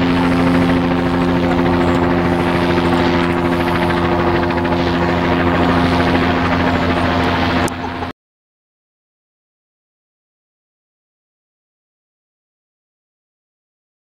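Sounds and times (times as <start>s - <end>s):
helicopter rotor chopping: 0.0s - 8.1s
helicopter engine hum: 0.0s - 8.2s.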